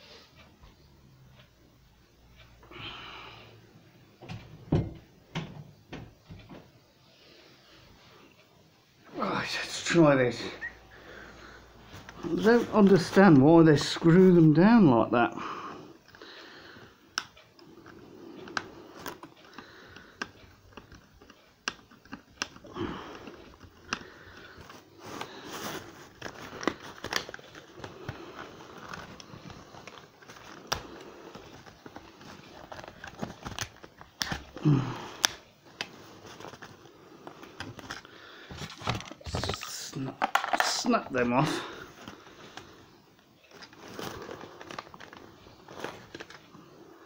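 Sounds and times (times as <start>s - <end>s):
cardboard rustling and creaking: 9.5s - 14.8s, 17.6s - 46.8s
screwdriver clicking and scraping: 20.1s - 22.6s.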